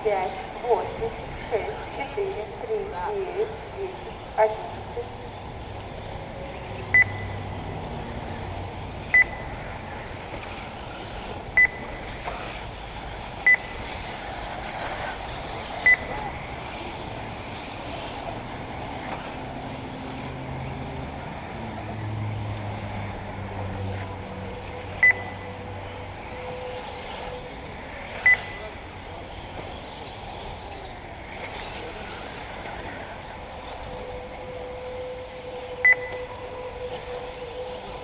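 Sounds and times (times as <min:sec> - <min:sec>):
electric rc cars running: 0:00.0 - 0:38.0
short electronic beeps: 0:06.9 - 0:07.6, 0:09.1 - 0:09.5, 0:11.6 - 0:12.0, 0:13.4 - 0:13.8, 0:15.8 - 0:16.1, 0:25.0 - 0:25.5, 0:28.2 - 0:28.7, 0:35.8 - 0:36.3.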